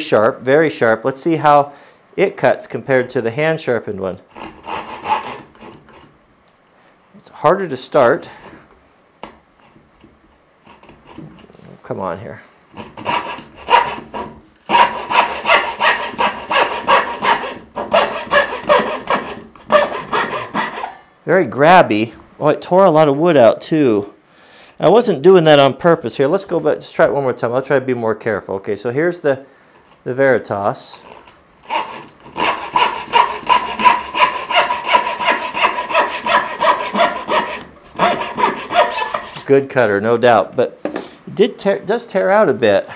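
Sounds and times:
hand saw cutting wood: 4.3s - 6.1s, 10.6s - 11.5s, 12.7s - 21.0s, 30.9s - 39.5s.

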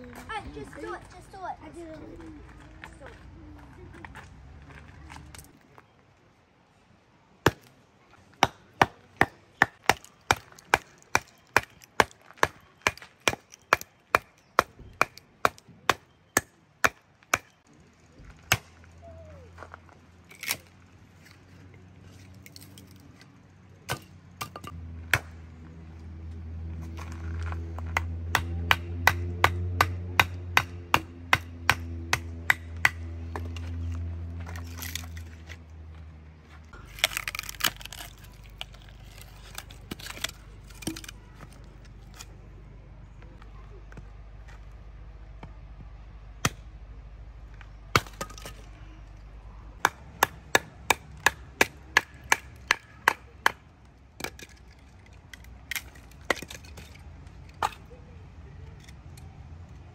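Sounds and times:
hatchet chopping wood: 7.4s - 7.7s, 8.3s - 17.6s, 18.4s - 18.7s, 23.9s - 25.4s, 27.8s - 35.2s, 36.8s - 42.3s, 46.4s - 46.7s, 47.9s - 48.6s, 49.8s - 54.8s, 55.6s - 57.8s.

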